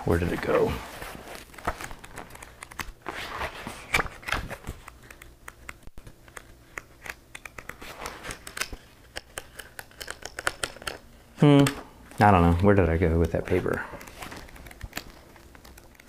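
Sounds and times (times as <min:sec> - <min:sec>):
paper rustling by hand: 0:00.0 - 0:06.8, 0:07.6 - 0:11.0, 0:12.2 - 0:16.0
small taps and clicks: 0:04.7 - 0:11.0.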